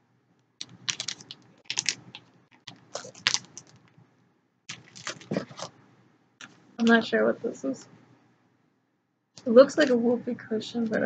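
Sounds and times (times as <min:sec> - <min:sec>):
crinkling plastic packaging: 0:00.6 - 0:04.0, 0:04.7 - 0:05.7.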